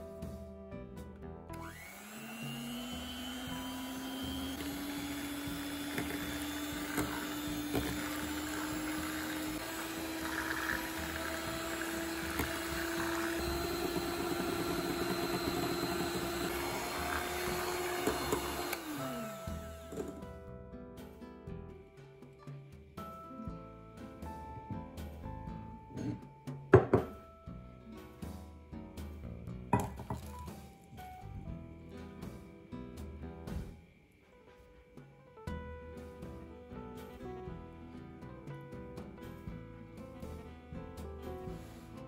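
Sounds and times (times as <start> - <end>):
electric hand mixer whining: 1.5 - 20.4.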